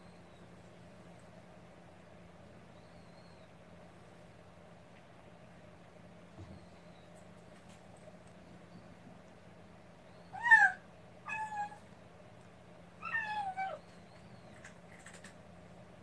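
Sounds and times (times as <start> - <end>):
kitten mewing: 10.4 - 11.8.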